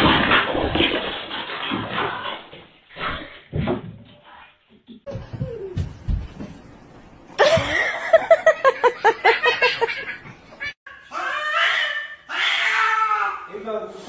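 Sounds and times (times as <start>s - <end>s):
person laughing hard: 7.4s - 10.2s
cat yowling loudly: 11.1s - 13.5s.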